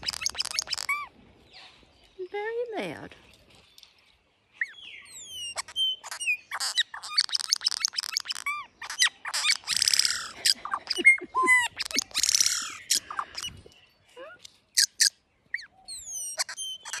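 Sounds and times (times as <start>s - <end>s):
bird whistling and chattering: 0.0s - 1.1s, 4.6s - 13.6s, 14.8s - 17.0s
harsh rasping bird calls: 0.0s - 1.7s, 4.5s - 13.8s, 14.4s - 17.0s.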